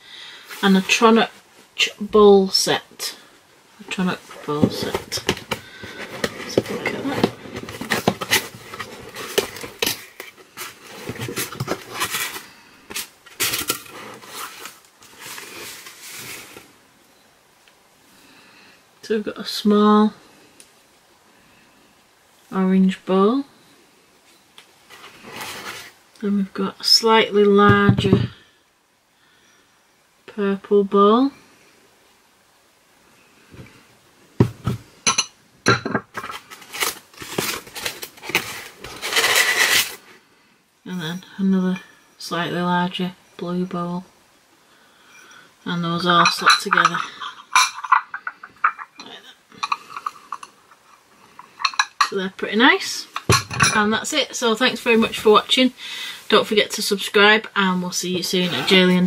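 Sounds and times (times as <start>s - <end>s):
packaging rustling and crinkling: 4.2s - 16.8s, 36.1s - 40.1s
wrapping crinkling: 36.3s - 40.1s
glazed bowls clinking together: 46.1s - 50.6s, 51.4s - 52.2s, 53.2s - 53.9s.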